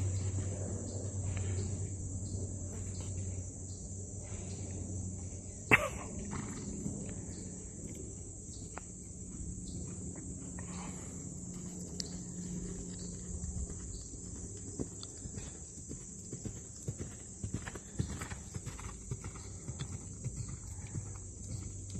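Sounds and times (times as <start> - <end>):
high insect chorus: 0.0 - 21.9
horse hoofbeats on sand: 8.6 - 10.6, 11.5 - 21.9.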